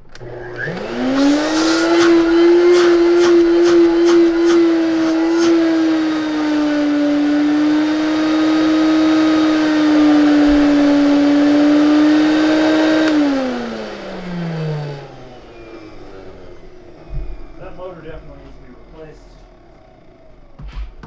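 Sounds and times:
vacuum motor running: 0.0s - 21.0s
click: 0.1s - 0.9s.

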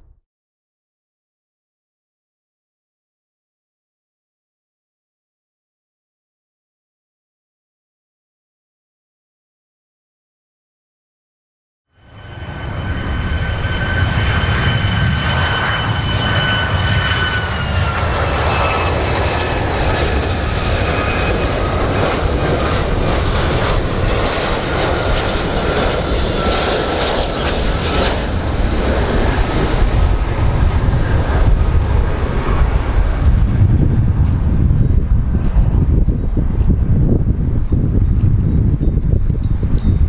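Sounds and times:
jet engine high whine: 11.9s - 40.0s
jet engine rumble: 12.0s - 40.0s.

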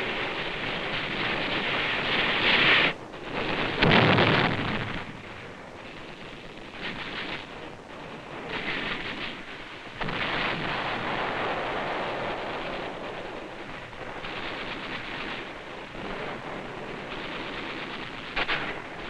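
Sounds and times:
distant gunfire and explosions: 14.0s - 19.0s.

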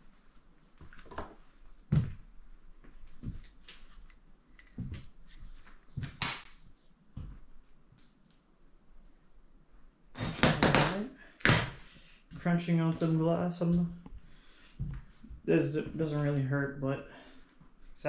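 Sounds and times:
slow footsteps on littered floor: 0.0s - 6.0s, 7.1s - 7.7s, 12.3s - 16.0s.

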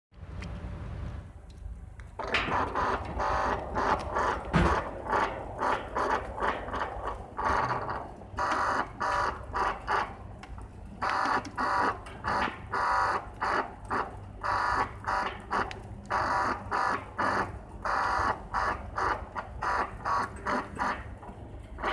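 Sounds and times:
sliding gate motor hum: 2.2s - 13.1s.

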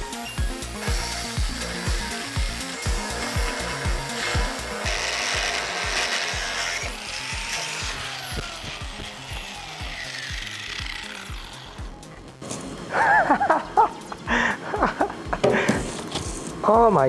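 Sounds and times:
music with thumping beat: 0.0s - 12.4s, 13.0s - 16.4s
grinder disc winding down: 0.1s - 12.9s
angle grinder cutting steel: 0.4s - 12.4s.

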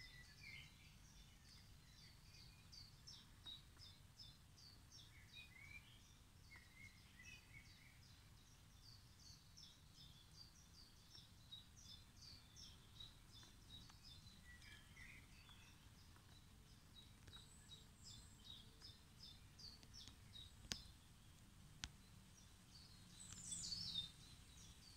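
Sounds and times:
birds chirping: 0.0s - 24.9s
sharp clicks: 19.7s - 20.9s.

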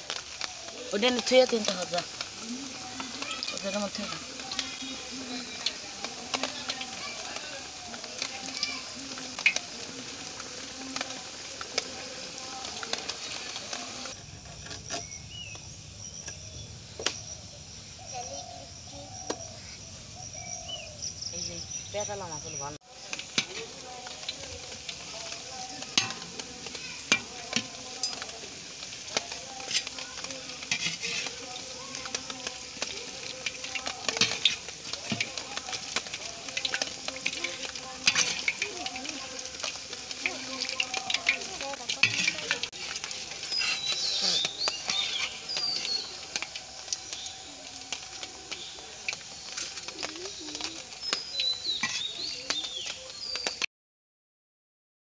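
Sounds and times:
chicken sizzling in hot oil: 0.0s - 53.7s
metal utensils scraping a pan: 9.3s - 15.2s, 23.0s - 47.2s, 51.7s - 52.3s.

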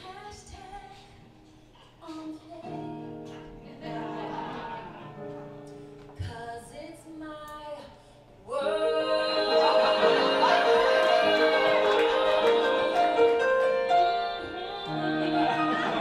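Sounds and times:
woman singing into microphone: 0.0s - 3.6s, 6.2s - 16.0s
grand piano accompaniment: 2.6s - 6.2s, 8.8s - 16.0s.

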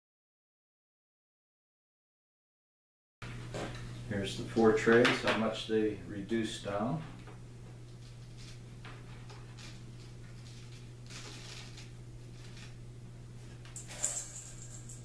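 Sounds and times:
steady low hum: 3.2s - 15.0s.

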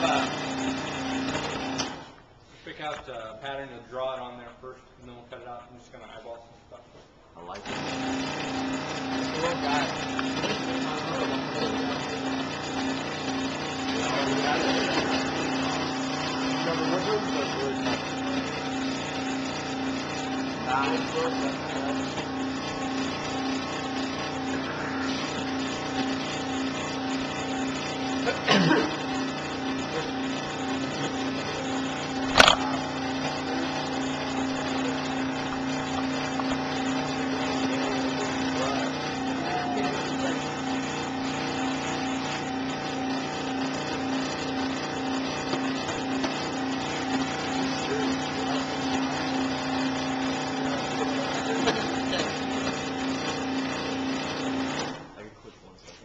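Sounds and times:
scroll saw humming: 0.0s - 2.2s, 7.6s - 55.2s.

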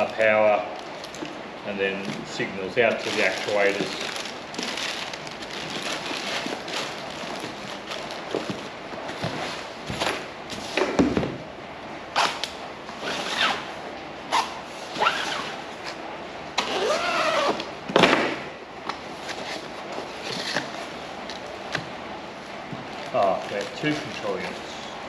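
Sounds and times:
cardboard and paper rustling: 0.9s - 10.9s, 22.7s - 24.7s
blade slitting packing tape: 12.2s - 13.6s.

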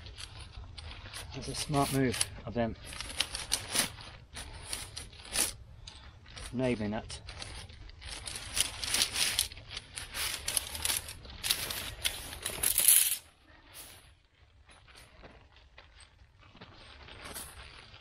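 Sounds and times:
metal tent pegs clinking: 1.1s - 13.2s.

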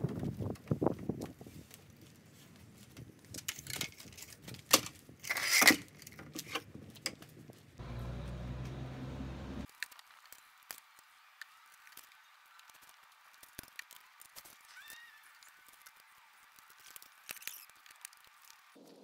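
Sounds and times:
low steady hum: 7.8s - 9.7s.

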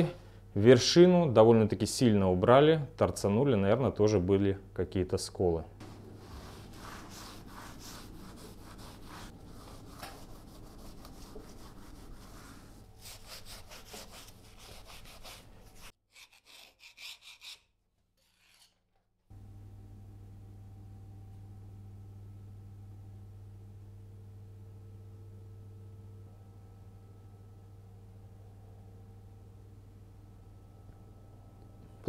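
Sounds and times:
steady low hum: 5.6s - 15.8s, 19.3s - 32.0s
rag wiping metal: 6.1s - 17.6s.

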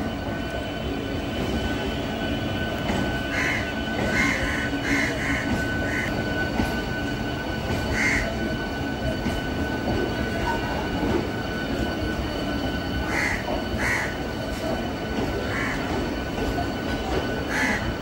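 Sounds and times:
train rumbling past: 0.0s - 18.0s
crows cawing: 3.3s - 6.1s, 7.9s - 8.3s, 13.1s - 14.2s, 15.5s - 15.9s, 17.5s - 17.9s.

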